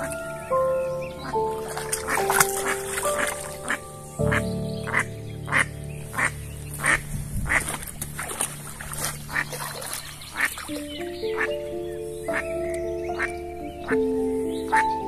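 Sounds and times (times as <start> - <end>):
soft background music: 0.0 - 15.0
ducks quacking: 1.2 - 11.6.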